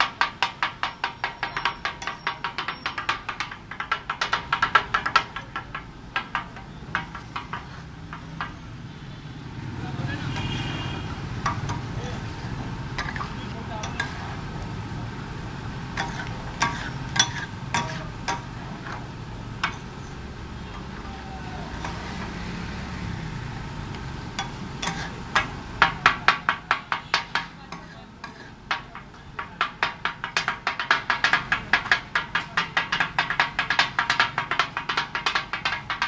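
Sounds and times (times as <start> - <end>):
metal spatulas striking griddle: 0.0 - 8.6, 11.4 - 12.1, 13.0 - 14.3, 15.9 - 20.0, 24.3 - 36.0
steady background noise: 0.0 - 36.0.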